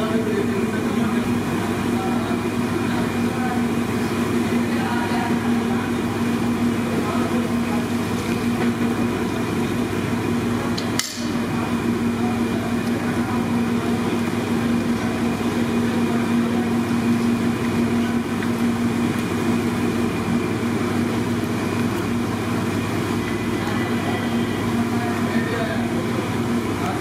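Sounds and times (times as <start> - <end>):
mechanical drone with low hum: 0.0 - 27.0.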